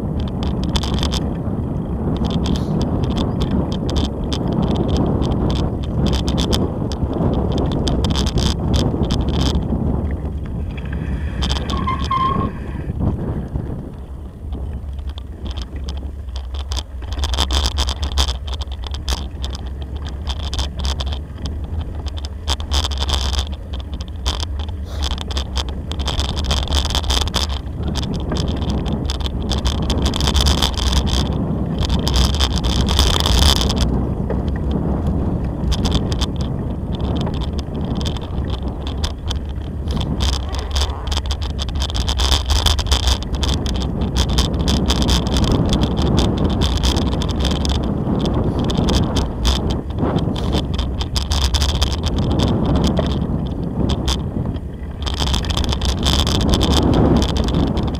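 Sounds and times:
bicycle tyres crunching on gravel: 0.0s - 57.9s
bike rattling: 0.0s - 57.9s
low rumble: 0.0s - 57.9s.

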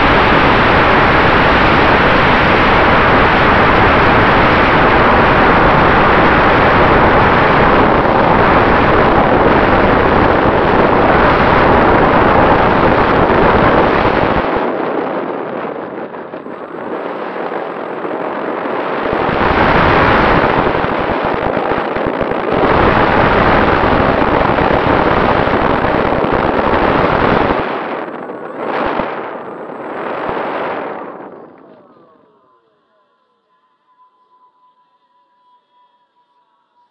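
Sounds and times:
wind buffeting roar: 0.0s - 33.1s.

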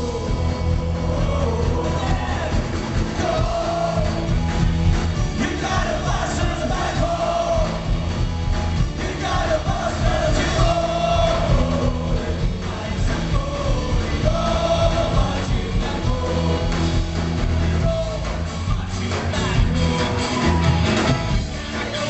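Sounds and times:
person singing: 0.0s - 4.4s, 9.0s - 22.0s
crowd yelling along: 0.0s - 22.0s
drums: 0.0s - 22.0s
punk band playing loud: 0.0s - 22.0s.

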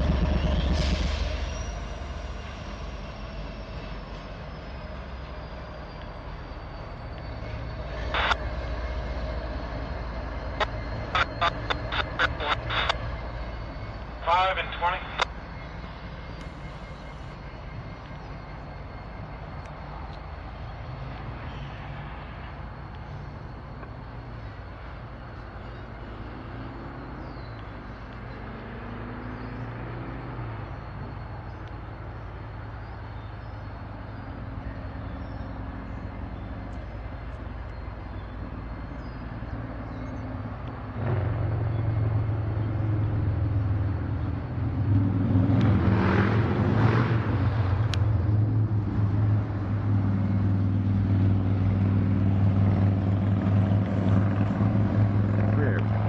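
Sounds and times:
diesel locomotive engine rumbling: 0.0s - 56.0s.

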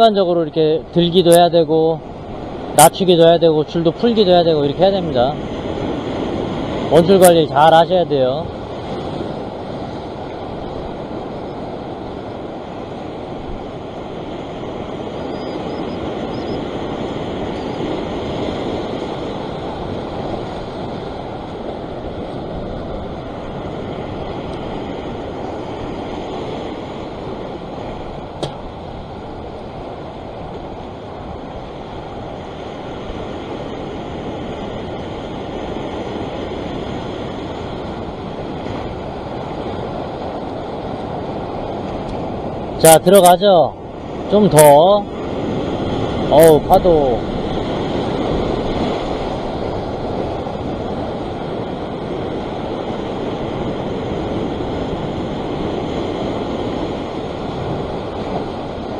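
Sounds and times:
sea swell washing over rocks: 1.9s - 58.9s.

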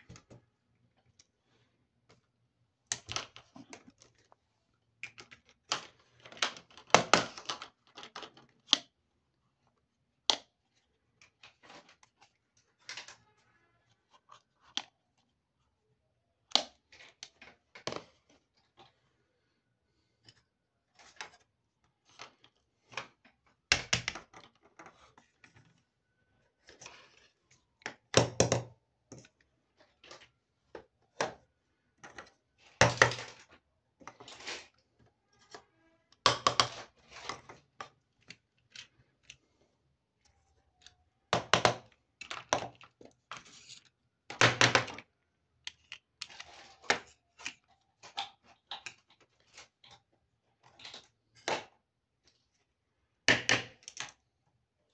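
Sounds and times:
plastic toy pieces clattering on table: 32.0s - 34.7s.

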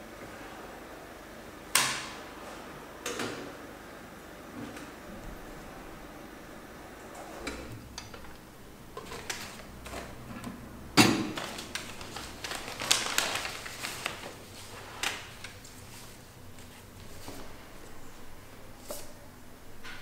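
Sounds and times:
paper pages rustling: 11.3s - 17.6s.

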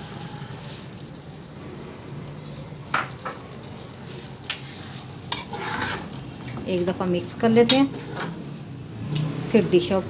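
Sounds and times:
food sizzling in a pot: 0.0s - 10.0s.

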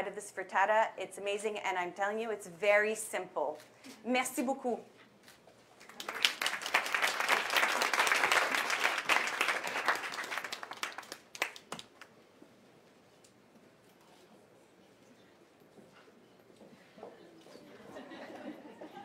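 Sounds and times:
audience applauding: 5.8s - 12.1s.

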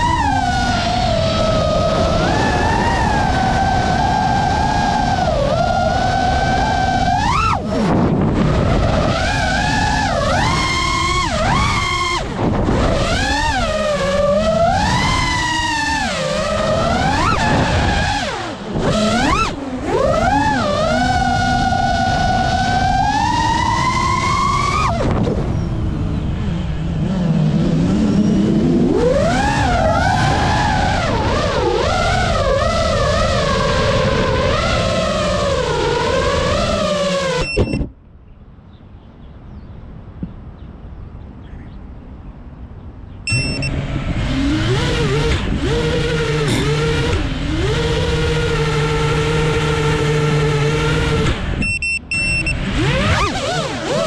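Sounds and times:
wind rush on microphone: 0.0s - 37.9s
drone motors whining: 0.0s - 38.0s, 43.3s - 54.0s.

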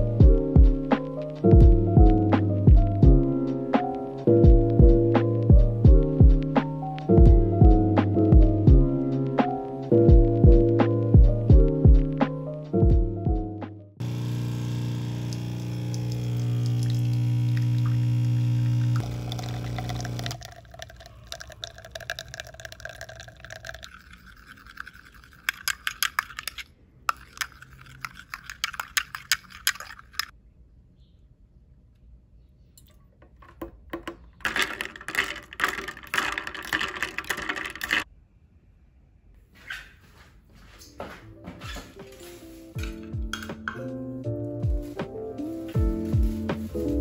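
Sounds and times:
espresso machine pump buzzing: 14.0s - 20.4s
coffee pouring into cup: 14.0s - 30.3s, 32.8s - 38.0s
spoon stirring in cup: 19.3s - 30.3s, 33.3s - 38.0s.

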